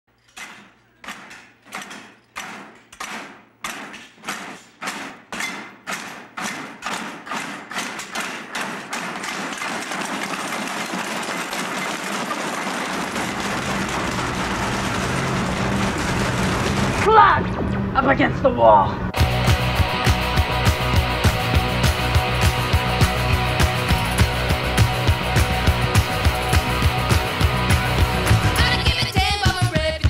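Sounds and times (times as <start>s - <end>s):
heavy thuds: 1.2s - 17.1s
low pulsing hum: 13.0s - 29.0s.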